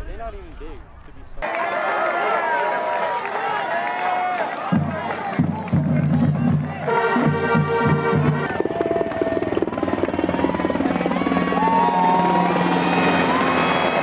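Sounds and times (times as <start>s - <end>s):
music: 4.7s - 8.6s
helicopter rotor chopping: 8.1s - 14.0s.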